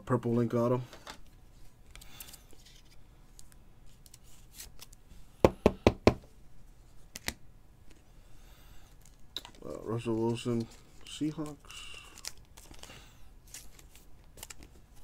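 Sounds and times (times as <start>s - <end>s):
faint card shuffling: 8.9s - 15.0s.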